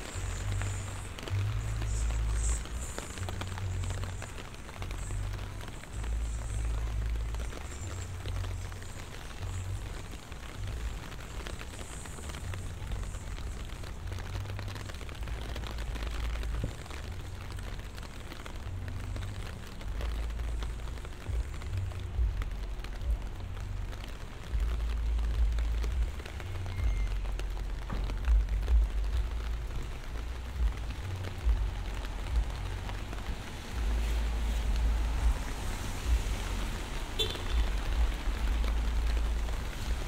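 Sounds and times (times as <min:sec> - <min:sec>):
rain hissing: 0:00.0 - 0:40.0
raindrops hitting close: 0:00.0 - 0:40.0.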